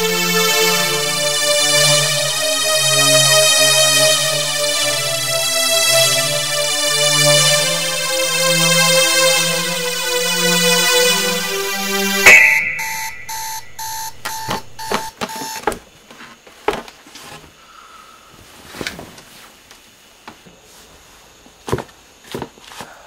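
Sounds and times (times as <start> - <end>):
music: 0.0 - 15.1
alarm clock beeping: 0.0 - 15.7.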